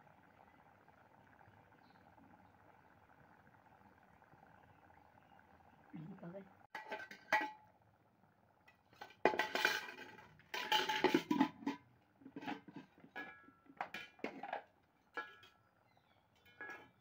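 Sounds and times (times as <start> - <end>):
utensils clattering against pot: 6.7 - 7.6, 8.7 - 15.6, 16.3 - 17.0.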